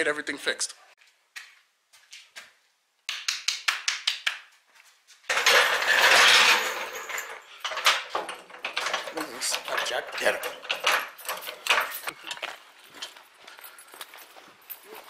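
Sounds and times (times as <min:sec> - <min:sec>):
loud rattling scrape: 0:05.3 - 0:12.1
metal clinking: 0:05.3 - 0:15.0.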